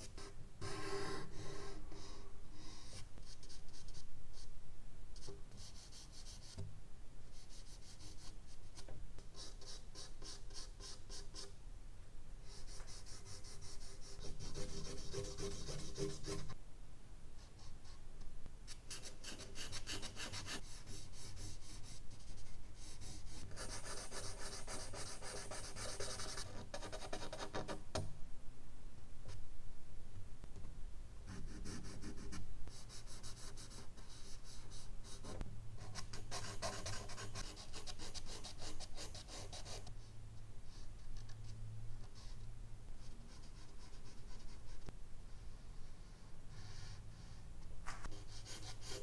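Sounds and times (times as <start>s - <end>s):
charcoal scratching on paper: 12.5s - 16.6s, 31.3s - 39.9s, 47.9s - 49.0s.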